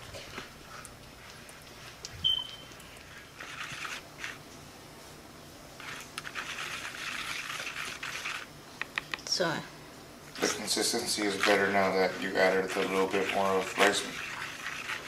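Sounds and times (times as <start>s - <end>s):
plastic spoon scraping a paper bowl: 3.4s - 4.4s, 5.8s - 8.5s, 10.4s - 15.0s.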